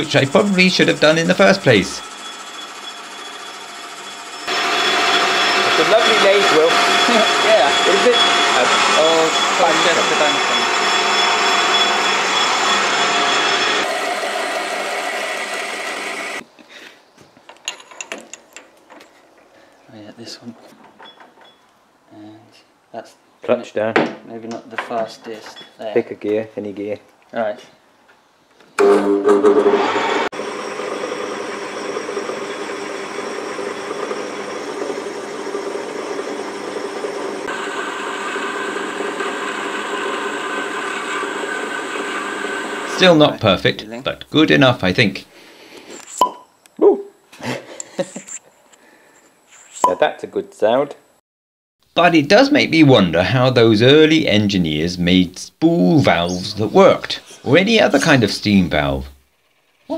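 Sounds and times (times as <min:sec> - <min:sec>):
drill boring into metal: 0:00.0 - 0:16.4, 0:28.8 - 0:43.2
metal lathe running: 0:00.0 - 0:16.4, 0:28.8 - 0:43.2.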